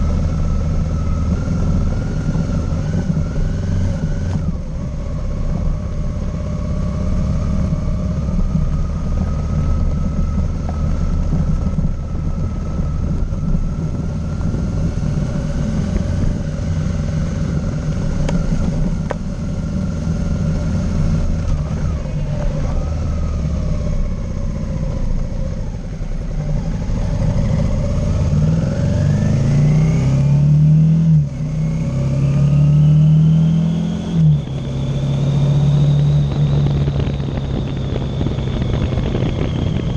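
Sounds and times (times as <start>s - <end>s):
motorcycle engine running: 0.0s - 30.4s, 33.4s - 39.9s.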